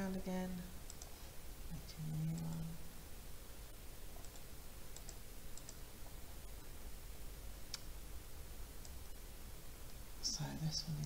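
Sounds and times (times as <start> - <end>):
faint low hum: 0.0 - 11.0
computer mouse buttons clicking: 0.9 - 1.2, 4.2 - 6.2.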